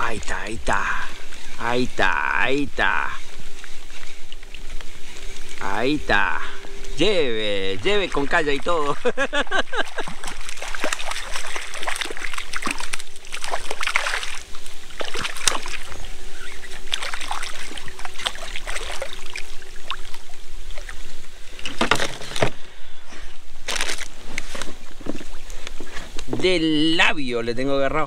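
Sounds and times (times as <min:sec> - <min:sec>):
fish splashing in water: 0:07.8 - 0:22.4.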